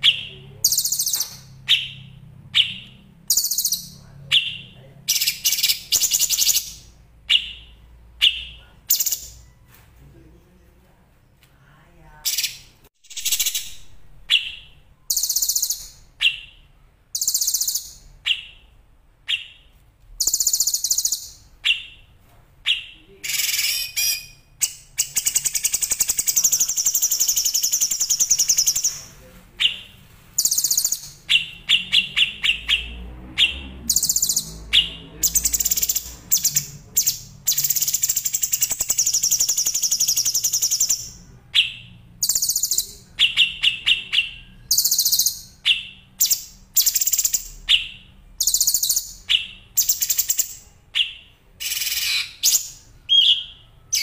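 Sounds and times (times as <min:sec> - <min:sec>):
songbirds chirping and trilling: 0:00.0 - 0:54.0.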